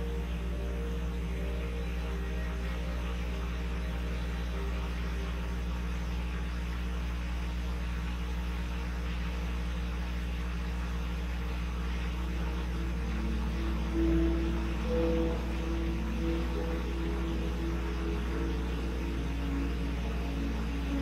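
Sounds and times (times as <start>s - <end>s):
steady low hum: 0.0s - 21.0s
faint held tones: 12.4s - 21.0s.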